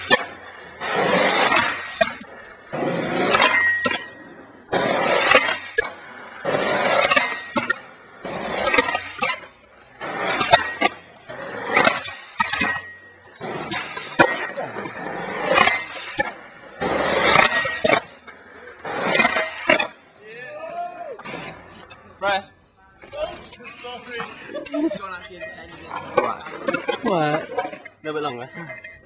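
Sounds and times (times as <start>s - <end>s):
skateboard popping and landing: 0.0s - 22.2s
skateboard grinding on ledge: 0.0s - 28.9s
skateboard wheels rolling on concrete: 0.0s - 29.0s.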